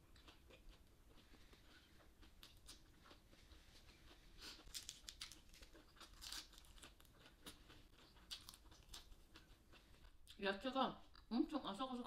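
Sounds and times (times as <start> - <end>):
faint chewing: 0.0 - 10.4
crisp vegetable crunches: 4.0 - 9.5.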